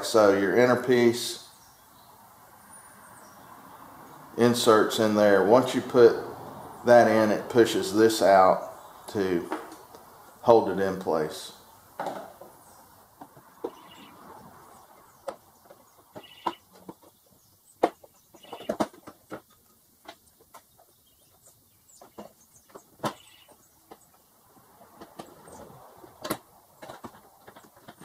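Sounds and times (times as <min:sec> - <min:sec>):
plastic squeaks: 0:18.4 - 0:19.5.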